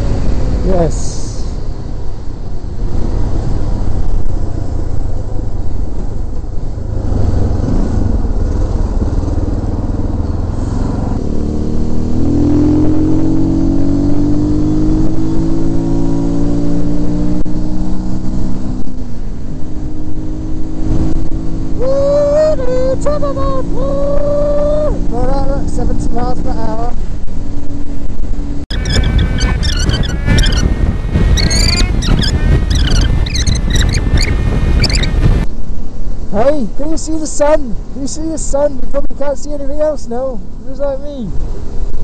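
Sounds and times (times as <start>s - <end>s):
wind rush on helmet: 0.0s - 39.4s, 41.3s - 42.0s
motorcycle engine accelerating: 2.8s - 35.5s.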